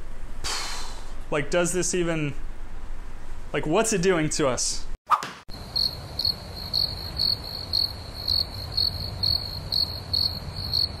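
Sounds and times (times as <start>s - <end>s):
cricket chirping: 5.5s - 11.0s.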